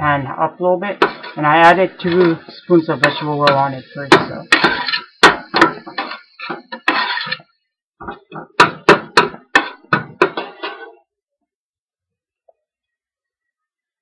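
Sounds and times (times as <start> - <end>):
metal spoon clanking in a pan: 1.0 - 7.4, 8.6 - 11.0.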